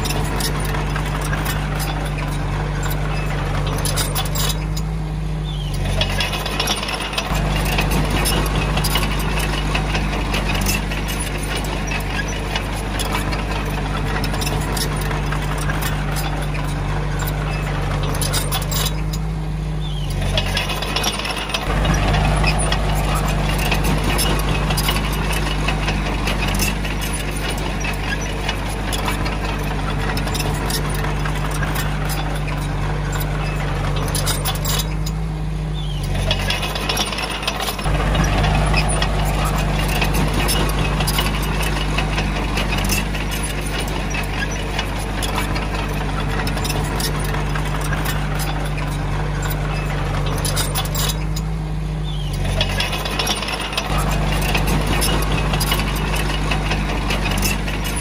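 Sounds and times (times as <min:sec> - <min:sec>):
bulldozer diesel engine under load: 0:00.0 - 0:58.0
steel tracks clanking: 0:00.0 - 0:58.0.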